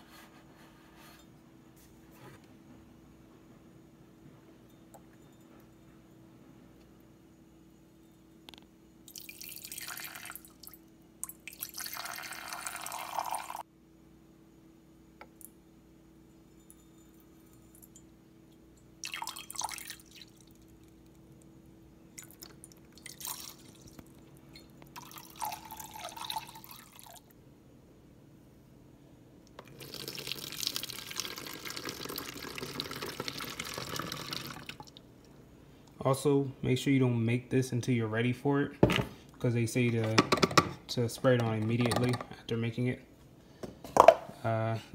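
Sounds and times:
liquid pouring: 0:09.1 - 0:13.6, 0:19.0 - 0:21.2, 0:22.1 - 0:24.2, 0:24.9 - 0:27.3, 0:29.6 - 0:35.0.

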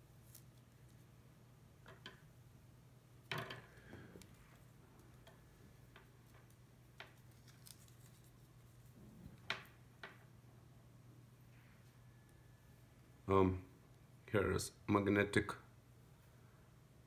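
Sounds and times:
cable rustling in hands: 0:00.0 - 0:01.2, 0:03.3 - 0:10.2
low steady hum: 0:00.0 - 0:17.0.

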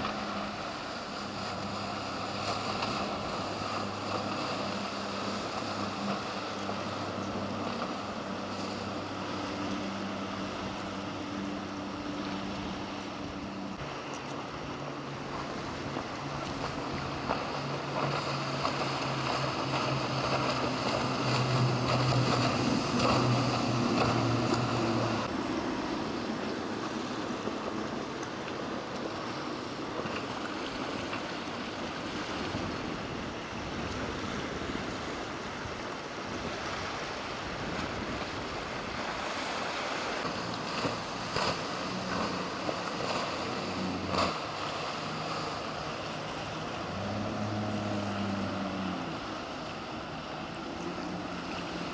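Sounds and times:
motorboat engine droning: 0:00.0 - 0:51.9
surf: 0:00.0 - 0:51.9
wind on microphone: 0:30.8 - 0:51.9.

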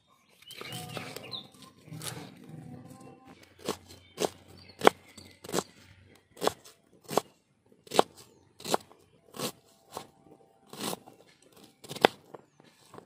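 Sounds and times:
knife chopping onion on wooden board: 0:03.6 - 0:05.8, 0:06.4 - 0:10.1, 0:10.7 - 0:12.4.

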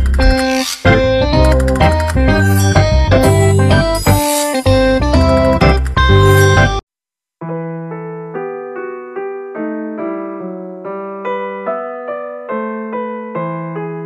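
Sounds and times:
gentle piano melody: 0:00.0 - 0:06.8, 0:07.4 - 0:14.0.

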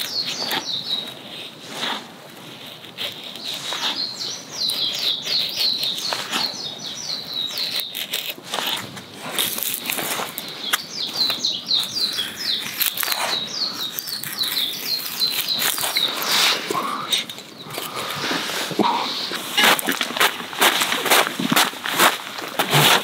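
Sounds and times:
songbird chirping: 0:00.0 - 0:02.0, 0:02.9 - 0:21.0
knife shaving wood: 0:00.0 - 0:23.0.

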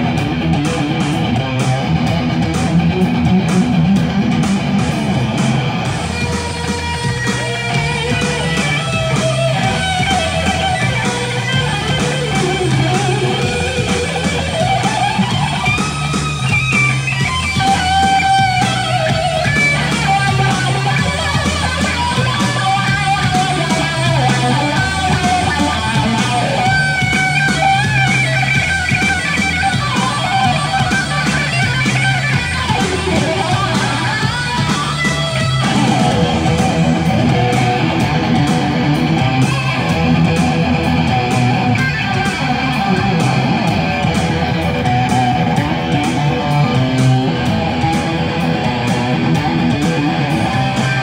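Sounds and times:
electric guitar playing: 0:00.0 - 0:51.0.

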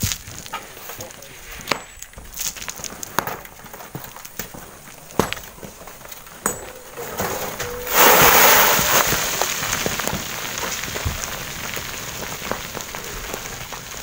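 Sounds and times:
rush of tumbling rock: 0:00.0 - 0:14.0
stones clattering down gravel: 0:00.0 - 0:14.0.

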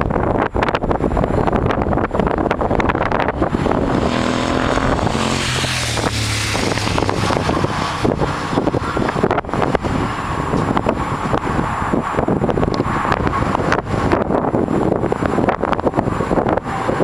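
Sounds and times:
wind buffeting microphone: 0:00.0 - 0:17.0
motorcycle riding past: 0:03.2 - 0:10.8.

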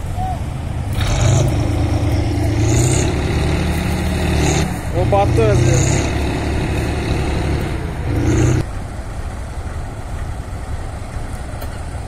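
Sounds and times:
diesel tractor engine hum: 0:00.0 - 0:12.0
rough low engine rumble: 0:00.0 - 0:12.0.

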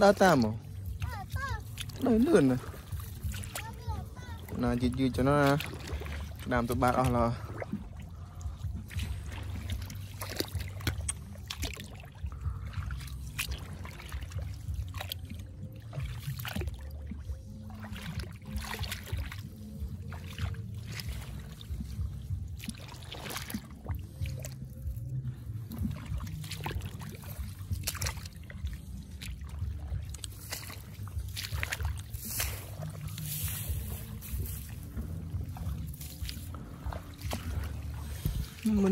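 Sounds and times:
steady low rumble: 0:00.0 - 0:38.9
wading through muddy water: 0:00.0 - 0:38.9.

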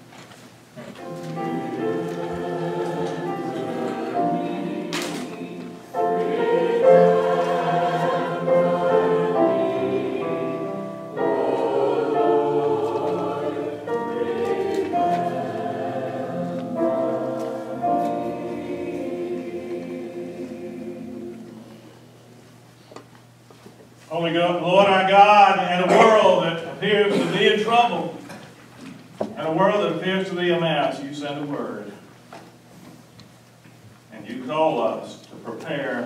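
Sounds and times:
choir singing slow chords: 0:00.8 - 0:22.4.

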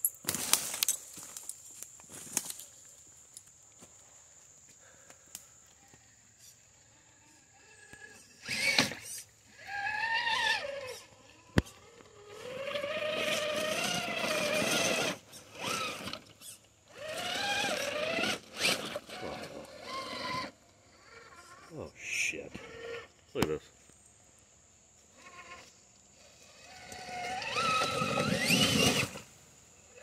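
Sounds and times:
electric motor whining: 0:07.6 - 0:21.6, 0:25.1 - 0:29.4.

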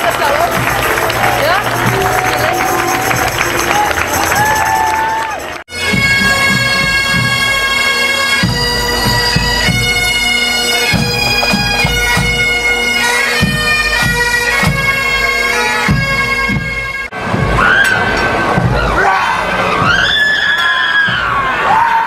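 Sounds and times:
bagpipes playing a tune: 0:00.0 - 0:17.2
bass and snare drums beating: 0:00.0 - 0:19.0.

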